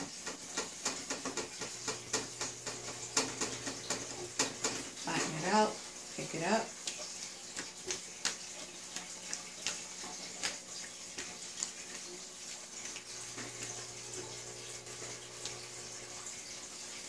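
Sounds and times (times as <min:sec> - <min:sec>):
hands patting sticky dough: 0:06.7 - 0:14.1.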